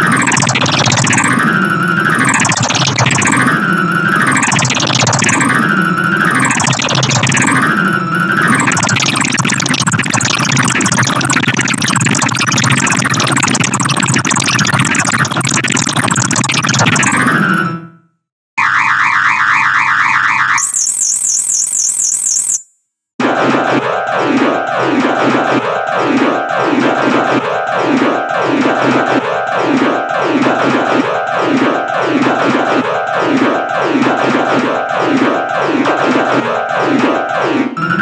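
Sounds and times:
midi piano note clusters: 23.2s - 38.0s.

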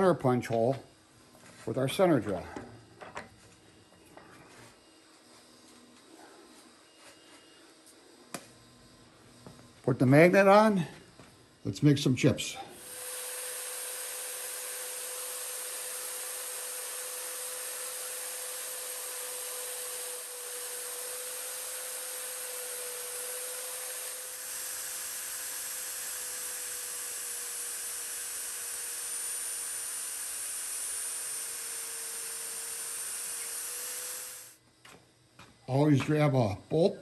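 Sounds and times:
magnetic drill whining: 8.8s - 35.0s.

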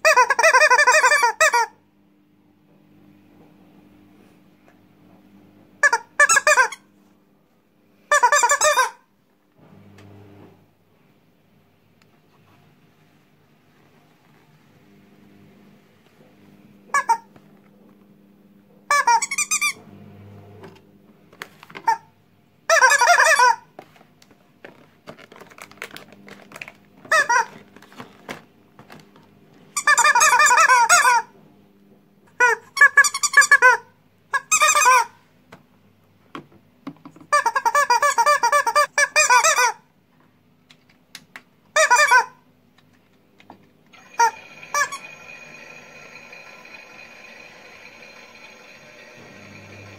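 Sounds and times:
rubber toy squeaking: 18.9s - 19.8s
steady toy machine whir: 43.9s - 49.9s.

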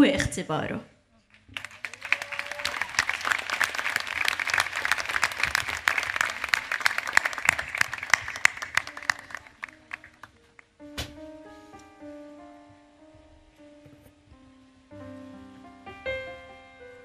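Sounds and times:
large audience applauding: 1.3s - 10.7s.

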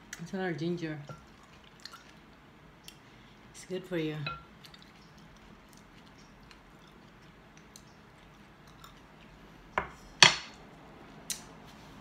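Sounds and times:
faint eating sounds: 0.0s - 12.0s
wooden spoon knocking glass bowl: 4.2s - 4.4s.

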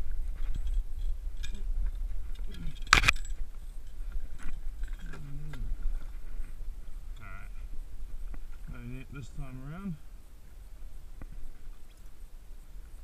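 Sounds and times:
fishing gear rattling and clicking: 0.0s - 7.6s
steady low rumble: 0.0s - 13.0s.

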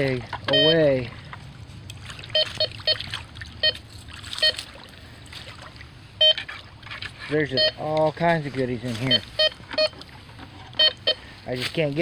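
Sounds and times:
stream trickling: 0.0s - 12.0s
metal detector short beeps: 0.5s - 1.0s, 2.3s - 3.0s, 3.6s - 3.8s, 4.4s - 4.6s, 6.2s - 6.5s, 7.4s - 7.9s, 8.9s - 10.0s, 10.8s - 11.3s.

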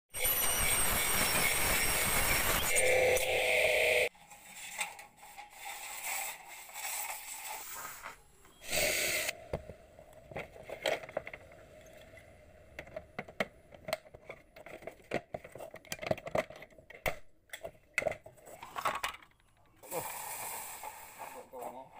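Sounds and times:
chop saw blade whining: 0.2s - 4.1s
aluminium parts clicking and rattling: 10.3s - 19.8s.

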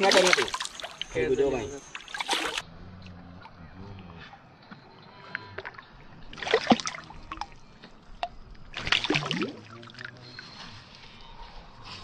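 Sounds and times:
fish splashing in water: 0.0s - 1.2s, 1.8s - 2.6s, 5.6s - 10.2s
water lapping: 0.0s - 11.4s.

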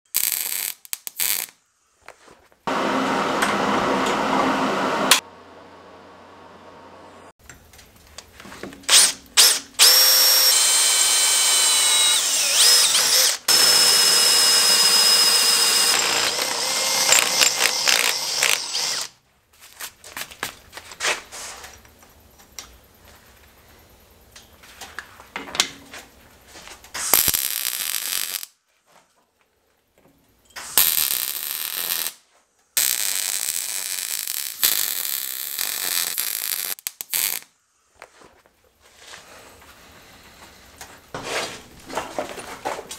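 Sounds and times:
welder arc crackling: 0.1s - 1.6s, 9.4s - 19.1s, 27.0s - 28.5s, 30.7s - 32.2s, 32.8s - 37.5s
drill bit squealing on metal: 8.9s - 19.1s
electric drill grinding through metal: 8.9s - 19.2s.

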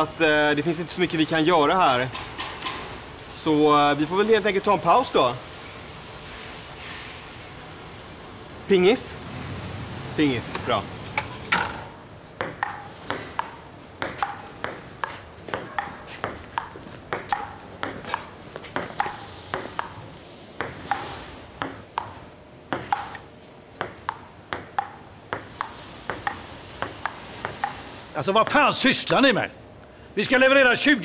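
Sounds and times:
table tennis ball clicking: 12.4s - 20.0s, 21.6s - 27.8s.

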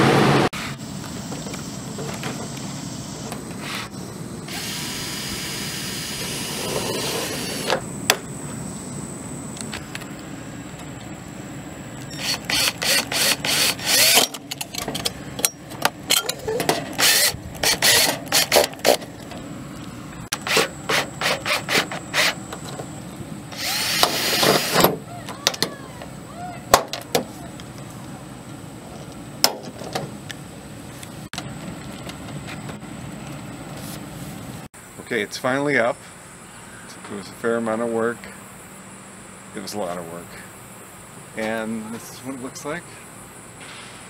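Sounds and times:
cordless drill driving screws: 4.5s - 7.8s, 12.1s - 14.3s, 17.0s - 19.0s, 23.5s - 24.9s.

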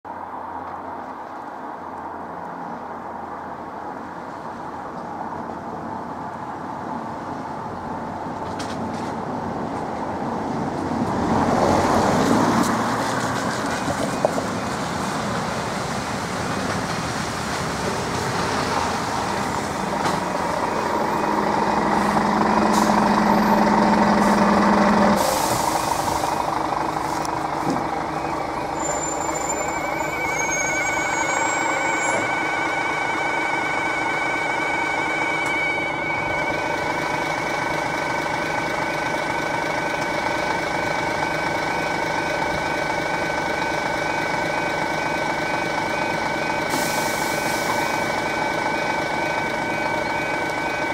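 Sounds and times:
vehicles passing over crossing: 0.2s - 50.9s
low engine hum: 10.5s - 50.9s
level crossing alarm tones: 27.5s - 40.1s.

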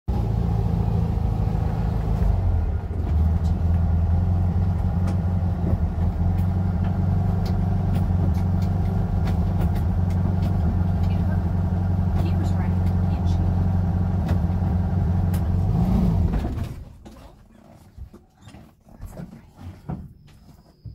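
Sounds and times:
van engine rumbling: 0.1s - 20.9s.

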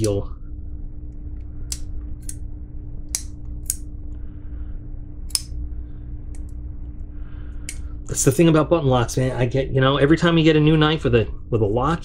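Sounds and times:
folding knife clicking: 1.7s - 2.4s, 3.1s - 3.8s, 5.3s - 5.5s.

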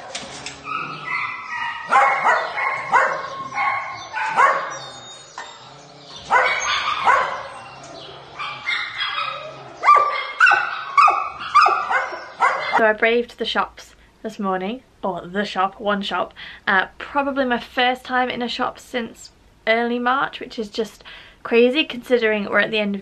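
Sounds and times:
dogs barking and yipping: 0.0s - 12.8s.

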